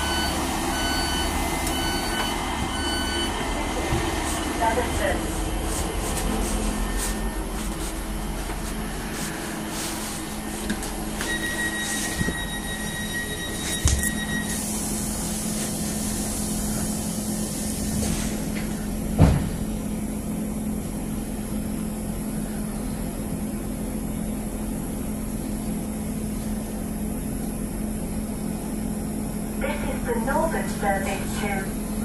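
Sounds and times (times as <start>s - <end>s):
train diesel engine idling: 0.0s - 32.0s
thump: 19.2s - 19.6s.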